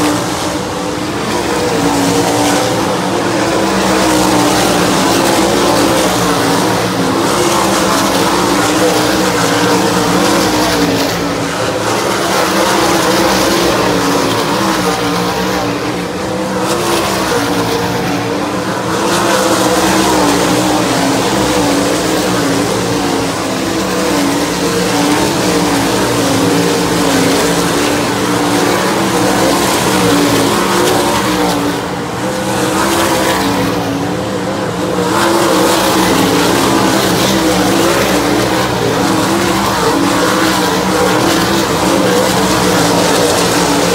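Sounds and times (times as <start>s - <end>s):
racing car engines droning: 0.0s - 43.9s.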